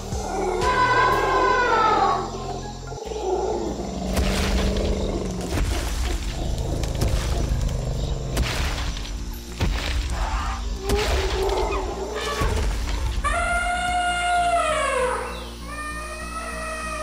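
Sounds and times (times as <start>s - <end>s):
cartoon background music: 0.0s - 17.0s
deep animal roar: 3.1s - 8.4s.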